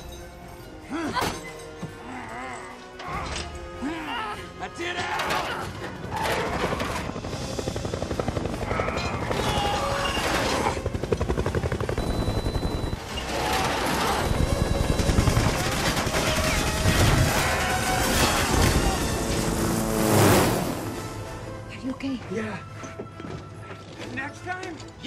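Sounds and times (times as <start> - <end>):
helicopter: 6.0 - 21.4
machine-gun fire: 13.6 - 17.4.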